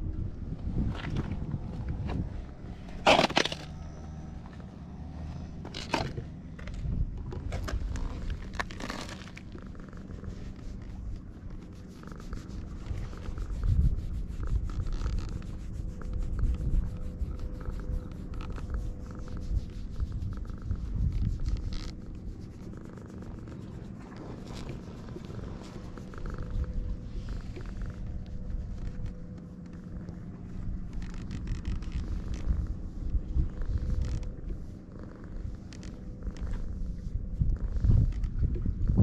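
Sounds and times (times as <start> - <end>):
low rumble: 0.0 - 39.0
hand rubbing cat fur: 7.8 - 38.2.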